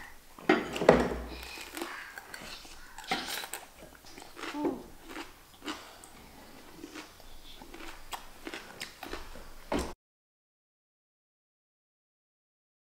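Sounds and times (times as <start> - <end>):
crunching and chewing cucumber: 1.4 - 9.5.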